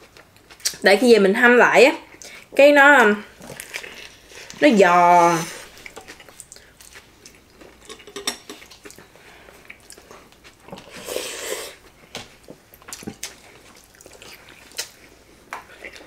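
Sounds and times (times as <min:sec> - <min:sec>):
food being chewed: 0:00.0 - 0:00.8, 0:03.3 - 0:04.6, 0:05.5 - 0:16.0.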